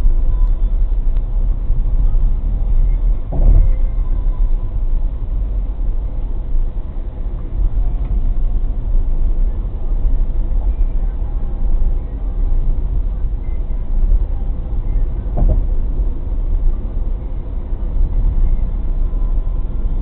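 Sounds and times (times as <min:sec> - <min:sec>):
car cabin road rumble: 0:00.0 - 0:20.0
short thump: 0:03.3 - 0:03.8, 0:15.3 - 0:15.8.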